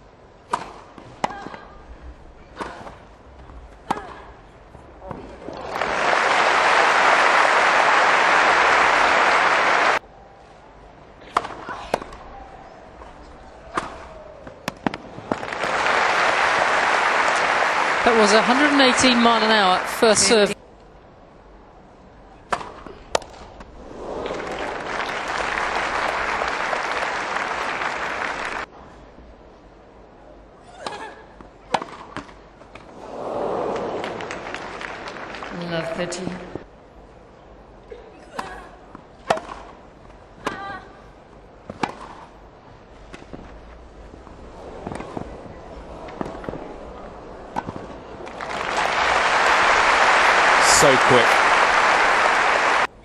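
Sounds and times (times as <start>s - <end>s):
crowd applauding: 5.5s - 10.0s, 15.3s - 20.6s, 23.9s - 28.7s, 33.1s - 36.2s, 48.2s - 53.0s
tennis ball hitting racket: 39.2s - 39.7s.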